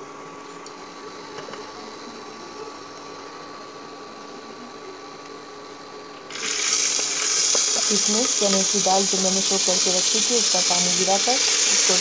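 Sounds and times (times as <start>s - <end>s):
faint hum: 0.0s - 12.0s
spices sizzling in oil: 6.3s - 12.0s.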